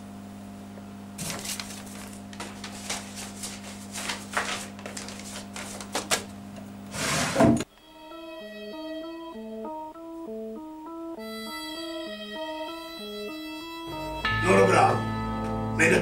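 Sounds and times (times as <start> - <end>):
papers rustling: 1.2 - 7.6.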